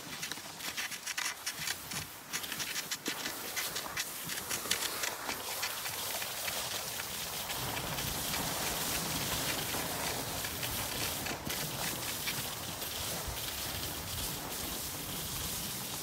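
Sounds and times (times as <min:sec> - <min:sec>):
ski poles crunching in snow: 0:00.0 - 0:16.0
skis sliding over snow: 0:00.0 - 0:16.0.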